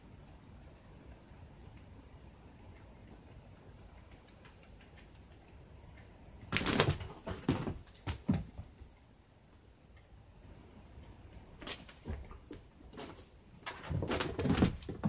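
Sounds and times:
cat thumping and scrabbling: 6.5 - 8.8, 11.6 - 15.0.

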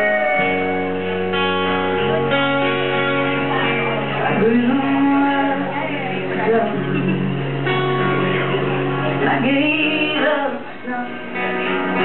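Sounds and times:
acoustic guitar strumming: 0.0 - 12.0
electric bass: 0.0 - 12.0
woman singing: 3.6 - 7.5, 9.0 - 11.2.

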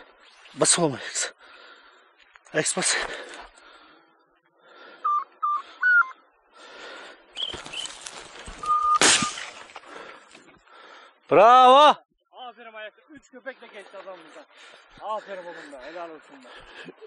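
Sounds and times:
short high beeps: 5.1 - 6.1
dry grass swishing and crackling: 7.4 - 9.8
footsteps in vegetation: 7.4 - 10.0.

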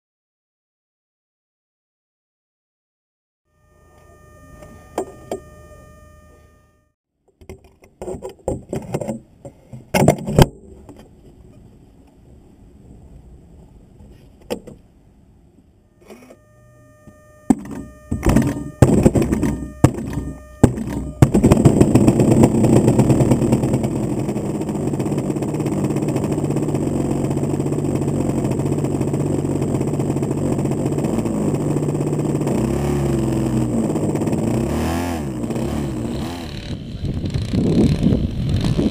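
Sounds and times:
model plane being handled: 16.0 - 16.4
two-stroke engine sputtering and idling: 17.5 - 38.9.

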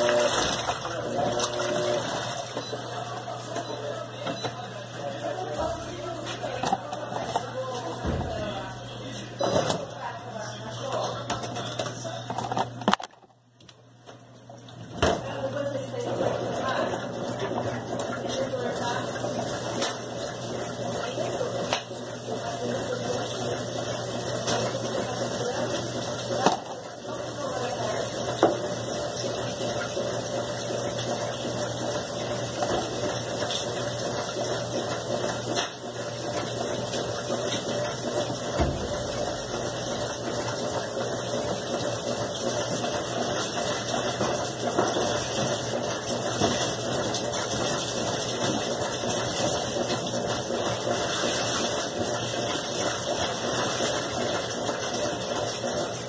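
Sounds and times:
washing machine humming: 0.0 - 56.0
water churning: 36.0 - 56.0.

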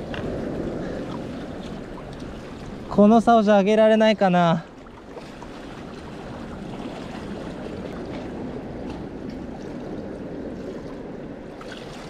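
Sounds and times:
sea water sloshing on concrete: 0.0 - 3.2, 4.1 - 12.0.

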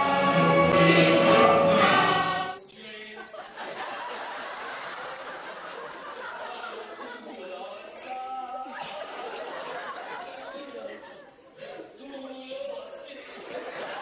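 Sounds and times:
mixed choir singing: 0.0 - 2.6
chatter in a large room: 2.0 - 14.0.

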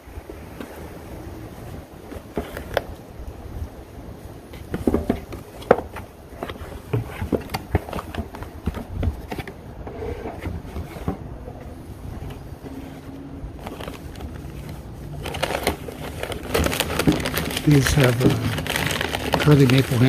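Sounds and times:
cardboard scraping and clicking: 2.0 - 3.0, 4.6 - 20.0
packing paper rustling: 2.0 - 3.0, 4.6 - 9.6, 12.1 - 20.0.

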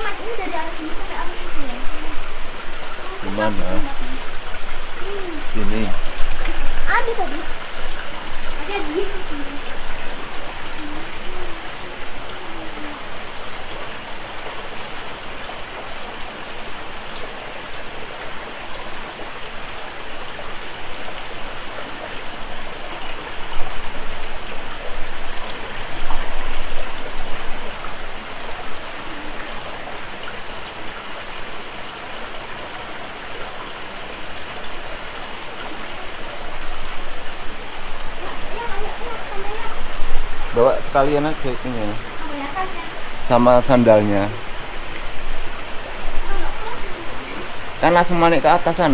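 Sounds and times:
thin steady high tone: 0.0 - 15.4
water rushing and splattering: 0.0 - 48.9.

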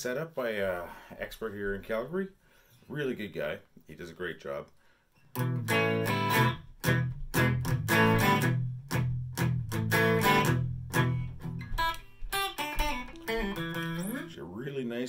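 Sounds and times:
electric guitar strumming chords: 5.4 - 14.3.

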